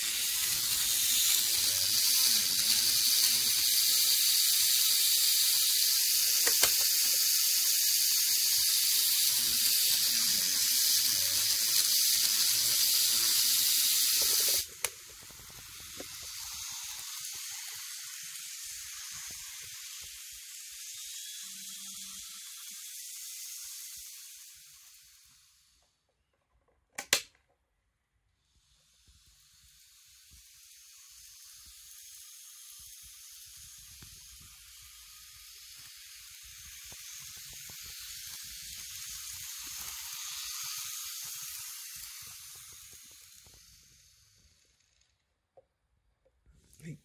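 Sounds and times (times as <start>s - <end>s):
model train running on track: 0.0s - 25.8s, 28.5s - 45.2s.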